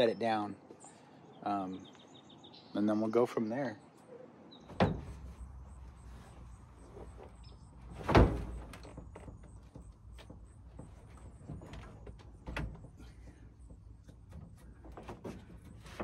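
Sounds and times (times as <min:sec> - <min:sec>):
knocks and clatter in truck bed: 0:04.6 - 0:06.5, 0:07.6 - 0:16.0.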